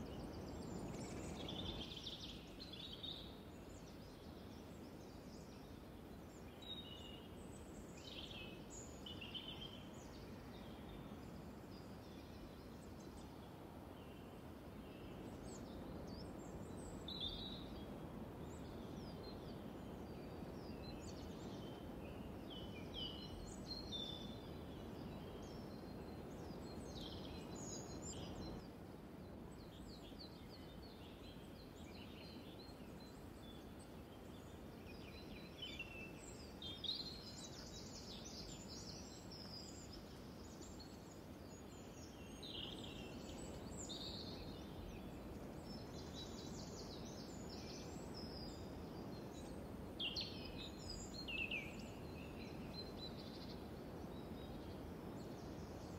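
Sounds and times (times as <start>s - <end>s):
low background noise: 0.0s - 55.9s
small birds chirping: 0.0s - 55.9s.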